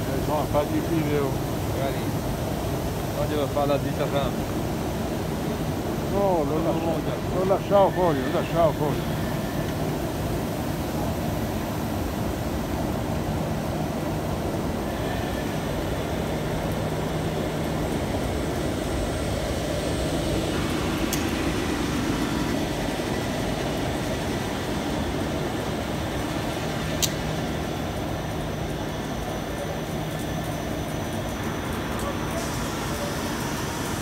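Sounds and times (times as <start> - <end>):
sharp click: 27.0 - 27.2.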